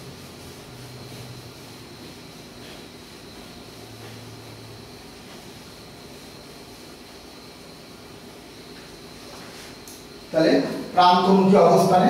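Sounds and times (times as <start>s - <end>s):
room tone hiss: 0.0s - 12.0s.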